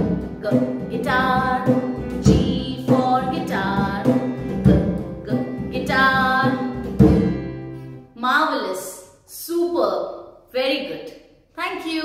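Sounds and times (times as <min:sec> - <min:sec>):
children's song singing: 0:00.0 - 0:07.5.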